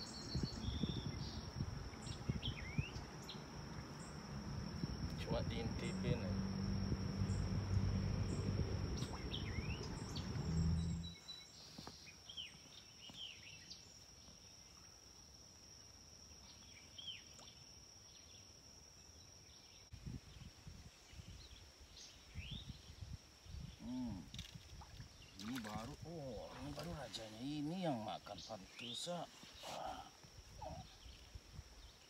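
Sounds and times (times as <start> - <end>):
high insect drone: 0.0 - 11.2
low hum: 3.0 - 11.2
bird chirps: 8.3 - 13.8.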